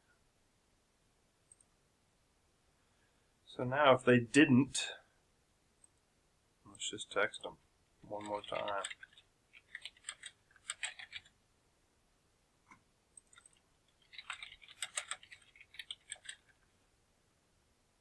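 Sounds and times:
keyboard typing: 0:08.1 - 0:11.4, 0:13.2 - 0:16.7.

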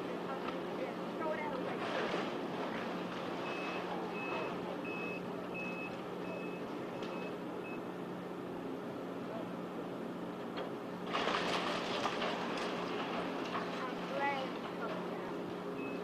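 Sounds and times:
heavy machinery engine hum: 0:00.0 - 0:16.0
backup alarm beeping: 0:03.4 - 0:07.8, 0:15.8 - 0:16.0.

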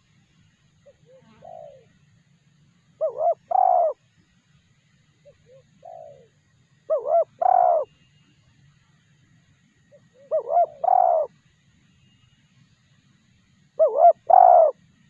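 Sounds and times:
dove cooing: 0:00.8 - 0:02.0, 0:03.0 - 0:04.0, 0:05.3 - 0:06.3, 0:06.9 - 0:07.9, 0:09.9 - 0:11.3, 0:13.8 - 0:14.8.

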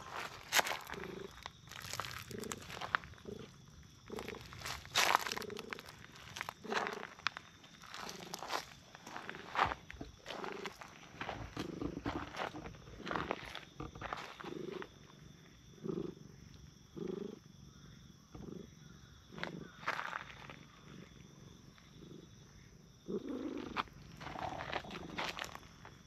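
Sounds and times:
cat purring: 0:00.8 - 0:07.1, 0:10.2 - 0:14.9, 0:15.8 - 0:17.6, 0:18.3 - 0:18.8, 0:20.8 - 0:25.2.

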